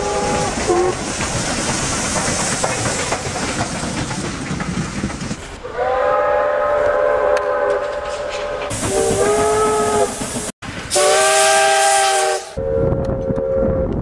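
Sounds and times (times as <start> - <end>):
train running with hiss and clatter: 0.0 - 14.0
steam locomotive chime whistle: 5.7 - 14.0.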